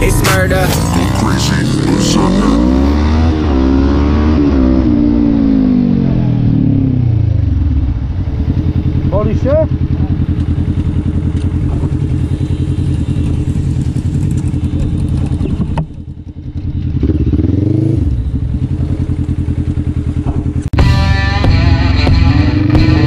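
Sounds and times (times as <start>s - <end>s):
engine revving: 0.0s - 12.6s, 17.0s - 23.0s
quad bike engines idling: 6.4s - 23.0s.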